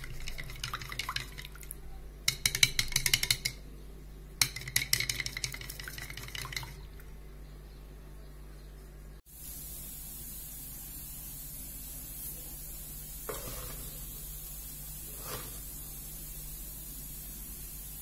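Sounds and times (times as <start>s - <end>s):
background hiss: 9.2s - 18.0s.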